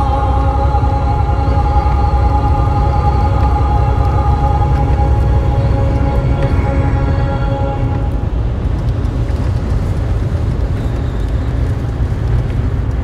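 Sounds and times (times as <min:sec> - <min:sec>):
sustained music notes: 0:00.0 - 0:09.4
loud low rumble: 0:00.0 - 0:13.0.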